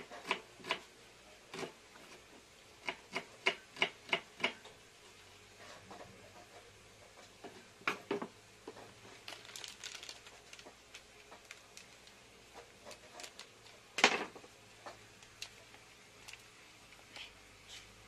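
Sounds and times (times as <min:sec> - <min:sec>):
foil sachet crinkling: 0:09.1 - 0:13.8, 0:16.2 - 0:16.5
sachet ripping open: 0:09.2 - 0:12.2, 0:12.9 - 0:13.5.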